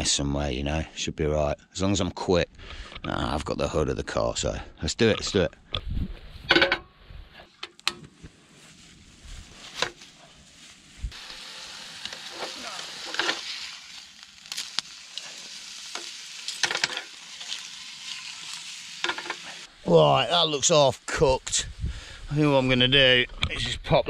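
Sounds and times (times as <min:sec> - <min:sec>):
steak sizzling: 0:08.9 - 0:21.3.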